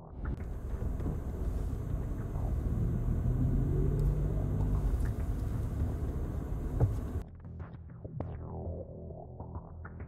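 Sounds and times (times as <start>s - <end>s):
car engine running: 0.4s - 7.2s
short thump: 6.6s - 7.2s.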